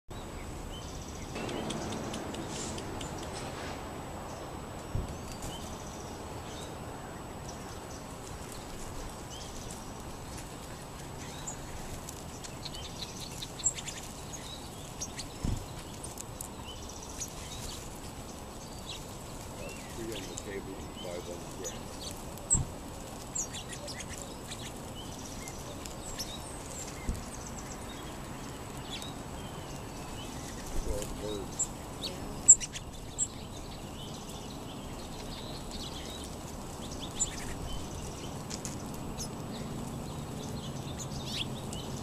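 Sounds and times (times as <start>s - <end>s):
sparrows chirping: 0.1s - 42.0s
outdoor hiss: 0.2s - 42.0s
low thumps: 1.3s - 5.5s.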